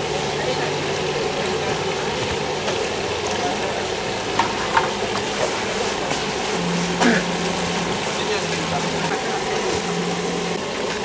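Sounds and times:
market background noise: 0.0s - 11.0s
low hum: 6.4s - 11.0s.

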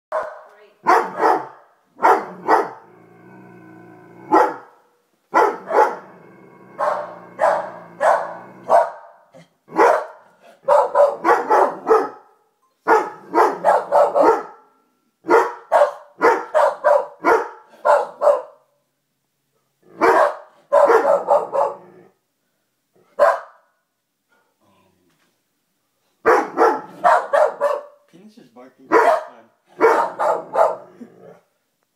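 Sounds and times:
dogs barking: 0.1s - 2.8s, 4.3s - 6.1s, 6.8s - 12.3s, 12.9s - 14.6s, 15.2s - 18.6s, 20.0s - 21.9s, 23.2s - 23.6s, 26.2s - 28.0s, 28.9s - 31.4s
dog growling low: 2.3s - 4.4s, 5.9s - 8.7s.

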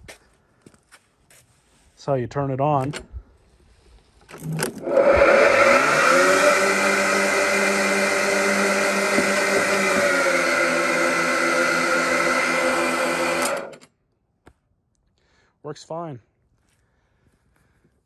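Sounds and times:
electric lawn mower running: 4.3s - 13.9s.

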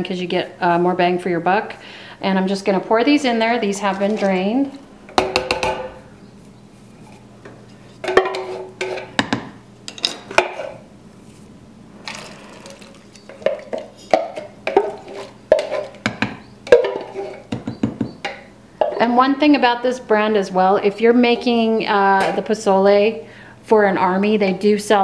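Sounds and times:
wooden spoon stirring in pot: 2.8s - 5.2s, 12.1s - 17.6s
can clanking against pot: 5.1s - 6.0s, 8.0s - 10.8s, 12.1s - 19.0s
hominy pouring into liquid: 12.0s - 13.0s.

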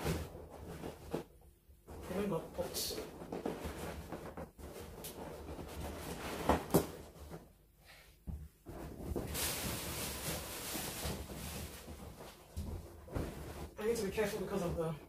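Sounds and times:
balloons rubbing together: 0.0s - 14.7s
sharp taps on balloons: 3.0s - 7.5s.

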